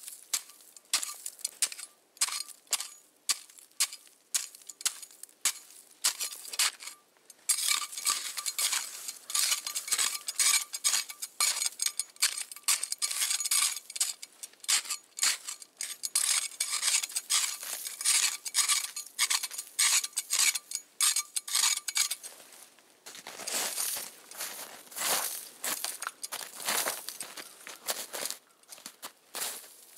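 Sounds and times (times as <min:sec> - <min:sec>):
metal blade scraping packed snow: 0:05.5 - 0:22.3
boots crunching in snow: 0:07.6 - 0:11.0, 0:22.2 - 0:29.9.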